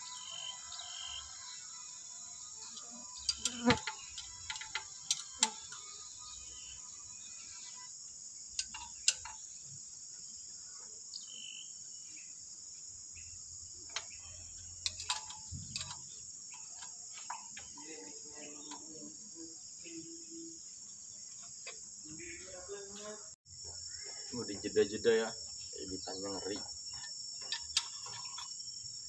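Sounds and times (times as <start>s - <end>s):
insect trill: 0.0s - 29.0s
metal wrench clicks: 14.8s - 17.0s.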